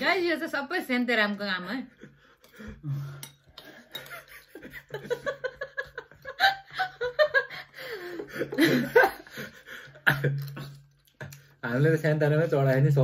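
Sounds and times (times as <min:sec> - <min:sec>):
people talking: 0:00.0 - 0:02.0
people laughing: 0:04.0 - 0:10.8.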